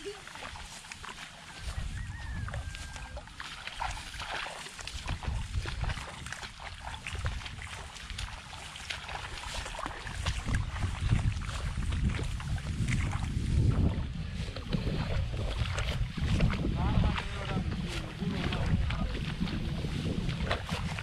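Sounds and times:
wind rumbling on microphone: 0:00.0 - 0:21.0
sickles cutting rice stalks: 0:00.1 - 0:02.0.

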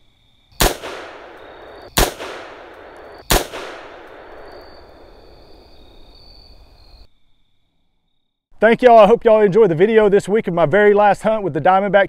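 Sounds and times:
rifle shots with echo: 0:00.6 - 0:05.2.

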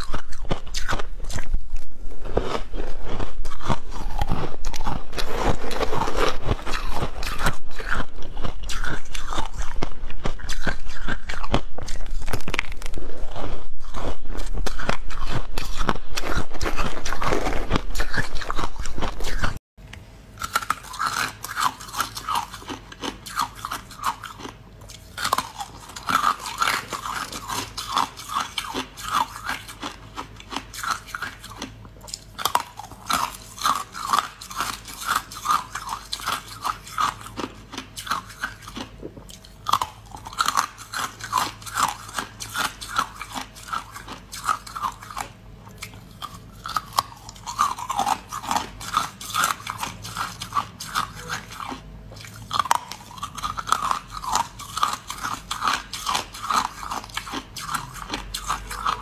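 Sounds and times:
person crunching ice: 0:00.0 - 0:19.6, 0:52.6 - 0:59.0.

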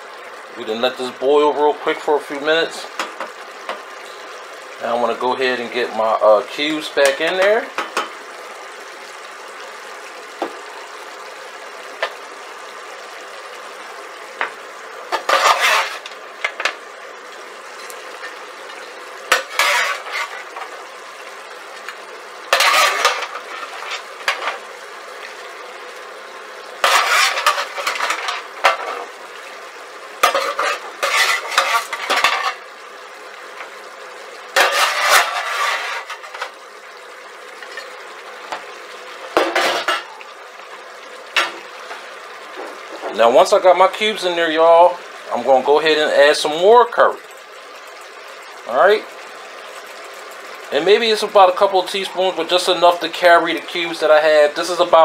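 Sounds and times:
sauce sizzling: 0:00.0 - 0:55.0
spoon scraping a metal pan: 0:15.1 - 0:16.2, 0:19.3 - 0:20.7, 0:22.5 - 0:24.6, 0:26.8 - 0:29.1, 0:30.2 - 0:32.6, 0:34.6 - 0:36.5.

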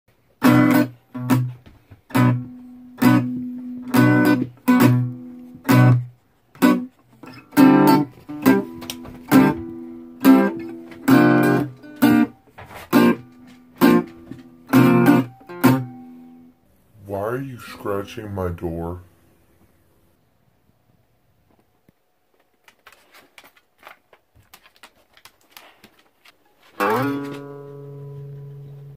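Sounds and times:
acoustic guitar strummed chords: 0:00.4 - 0:16.6, 0:26.8 - 0:28.9.

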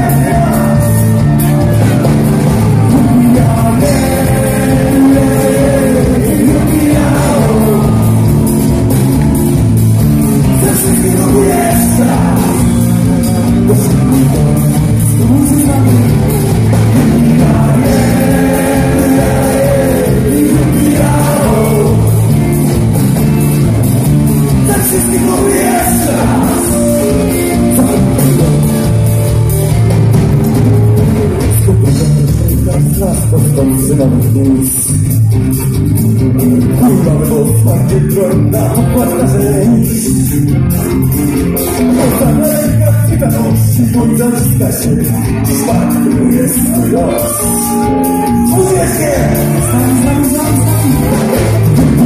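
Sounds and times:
man singing: 0:00.0 - 0:08.4, 0:10.4 - 0:22.4, 0:24.6 - 0:29.0, 0:31.4 - 0:35.0, 0:36.6 - 0:40.5, 0:42.0 - 0:52.0
folk-rock band playing: 0:00.0 - 0:52.0.

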